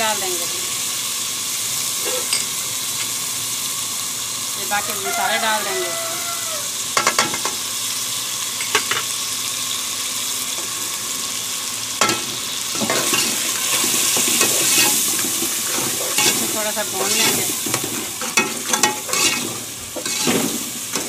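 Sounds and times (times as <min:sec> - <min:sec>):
onions sizzling in hot oil: 0:00.0 - 0:21.0
metal ladle scraping pot: 0:18.2 - 0:21.0.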